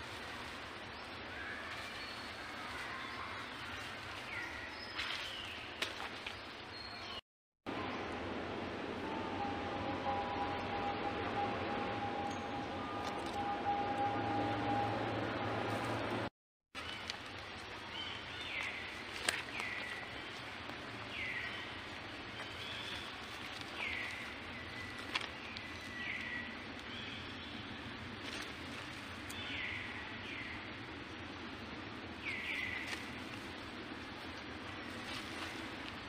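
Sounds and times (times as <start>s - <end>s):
outdoor ambience: 0.0s - 36.0s.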